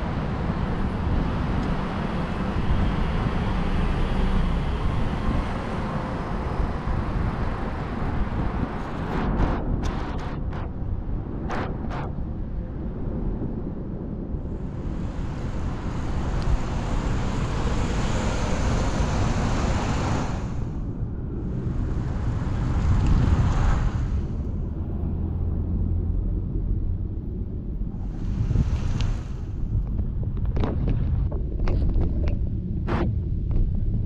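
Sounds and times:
wind and road rumble: 0.0 - 34.0
rushing hiss: 14.7 - 20.8, 28.0 - 29.6.

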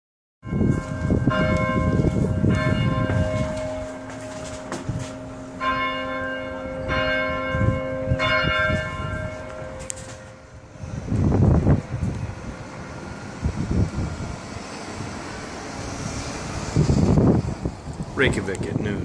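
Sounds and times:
church bells ringing: 0.4 - 13.1.

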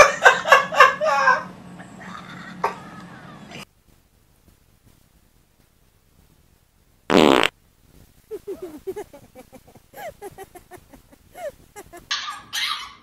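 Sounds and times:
giraffe farting: 7.1 - 7.5.

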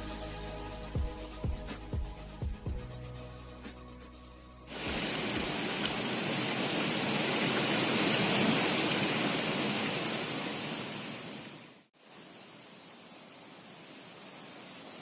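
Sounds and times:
music: 0.0 - 4.7
falling water rushing: 4.7 - 15.0.

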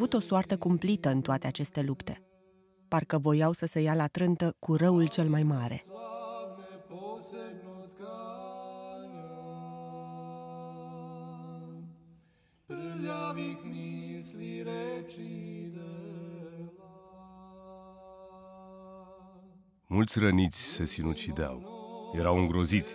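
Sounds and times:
unaccompanied singing of held notes: 5.9 - 11.9, 12.7 - 19.4.

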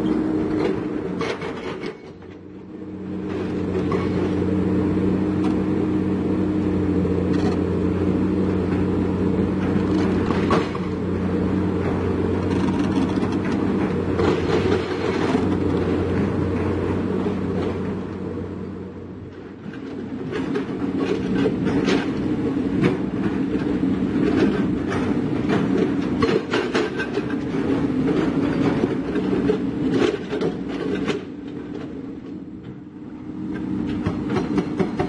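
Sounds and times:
excavator diesel engine under load: 0.0 - 35.0
steel tracks clanking: 7.1 - 35.0.

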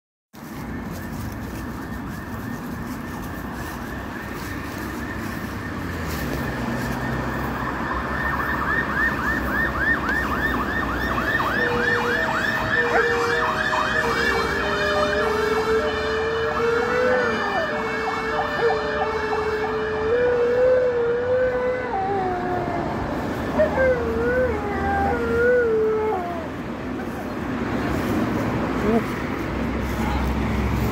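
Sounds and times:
ambulance siren wailing: 0.4 - 30.9
dog howling: 23.6 - 26.5.

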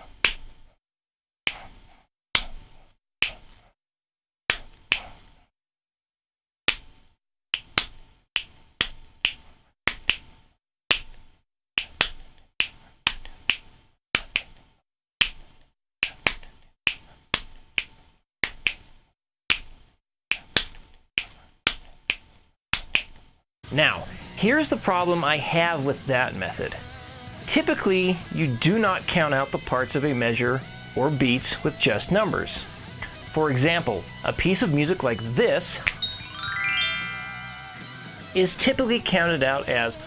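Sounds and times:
finger snaps and hand taps: 2.4 - 2.6, 3.2 - 3.5, 4.5 - 5.2, 7.6 - 10.3, 10.9 - 11.2, 11.8 - 14.6, 15.2 - 18.8, 19.5 - 23.2.

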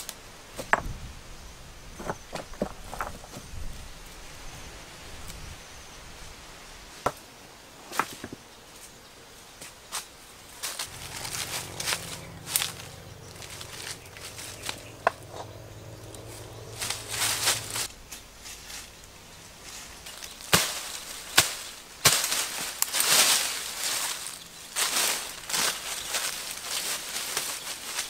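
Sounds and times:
leaves and undergrowth rustling: 0.0 - 28.0
footsteps on loose stones: 10.6 - 28.0
low steady hum: 10.8 - 22.0.

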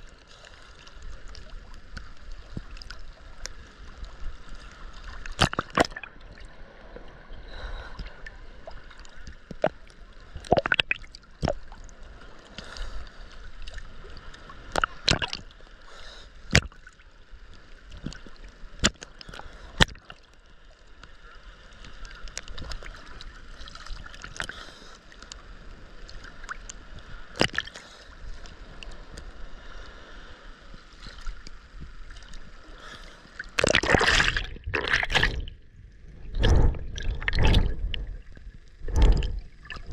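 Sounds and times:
sea water sloshing against camera: 0.0 - 20.3, 21.6 - 39.9
underwater rush of water: 0.0 - 39.9
sharp water splash: 33.6 - 35.5, 36.3 - 38.0.

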